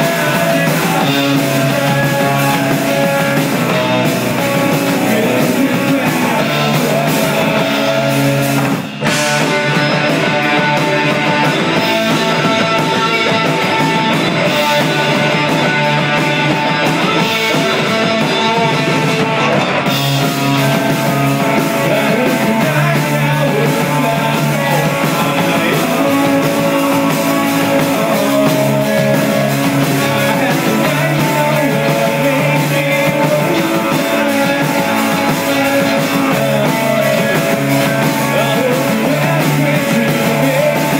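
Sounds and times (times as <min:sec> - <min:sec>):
bass guitar: 0:00.0 - 0:40.9
drum kit: 0:00.0 - 0:40.9
electric guitar: 0:00.0 - 0:40.9.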